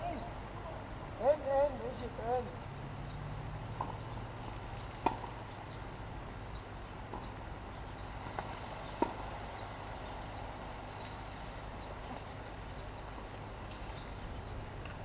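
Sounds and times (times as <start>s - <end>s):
tennis ball hits and bounces: 3.7s - 5.6s, 7.0s - 7.4s, 8.2s - 9.3s.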